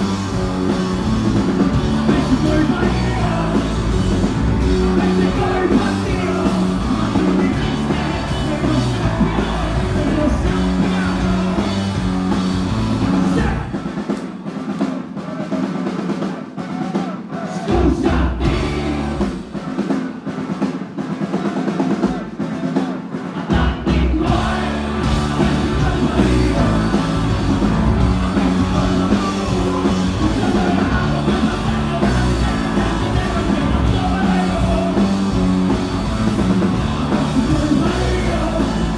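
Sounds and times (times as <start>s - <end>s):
bass guitar: 0.0s - 14.0s, 17.7s - 19.5s, 23.4s - 38.9s
electric guitars: 0.0s - 14.1s, 23.5s - 38.9s
drum kit: 0.0s - 38.9s.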